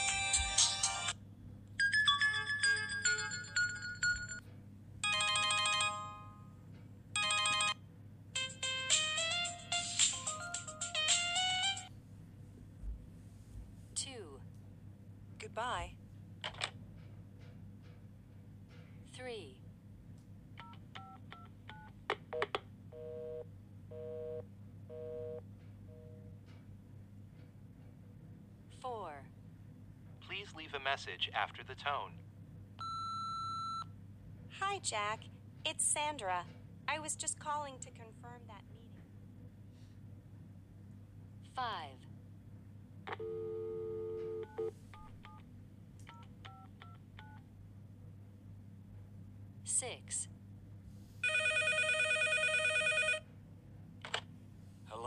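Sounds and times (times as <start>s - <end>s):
telephone busy signal: 32.8s - 33.9s, 43.2s - 44.8s
telephone dial tone: 43.1s - 45.4s, 51.2s - 53.2s.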